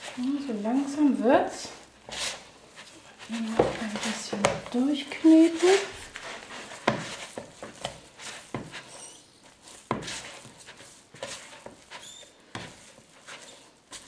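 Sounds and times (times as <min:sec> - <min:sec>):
dough thumping in a bowl: 0:03.4 - 0:04.9, 0:06.7 - 0:14.0
faint high squeaks: 0:08.9 - 0:09.4, 0:11.9 - 0:12.4.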